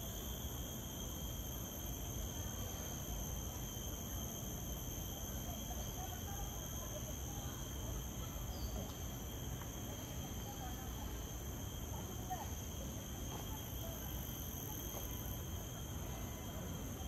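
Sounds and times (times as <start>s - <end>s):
insects chirring: 0.0s - 17.0s.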